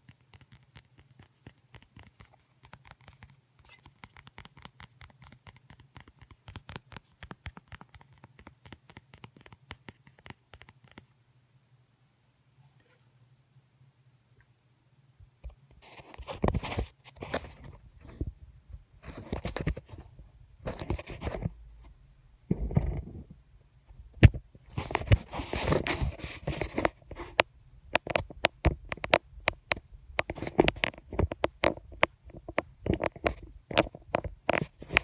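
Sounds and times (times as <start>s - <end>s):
sharp taps and clicks: 0.0s - 11.1s, 26.5s - 35.0s
rustling and scraping: 15.4s - 35.0s.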